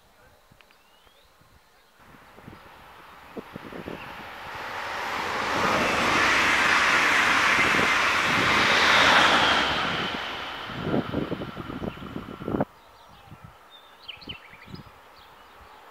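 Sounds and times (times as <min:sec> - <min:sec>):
train passing at speed: 0:02.0 - 0:12.7
wind buffeting microphone: 0:02.0 - 0:13.6.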